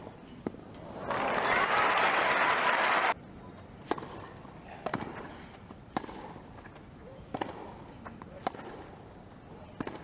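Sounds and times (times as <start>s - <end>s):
crowd applauding and cheering: 1.0s - 3.2s
racket striking tennis ball: 3.8s - 5.3s, 5.9s - 6.5s, 7.3s - 9.0s, 9.8s - 10.0s.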